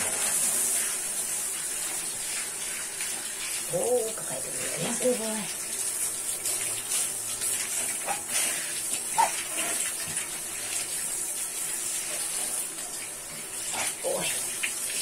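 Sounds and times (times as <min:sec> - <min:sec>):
water spraying from shower head: 0:00.0 - 0:15.0.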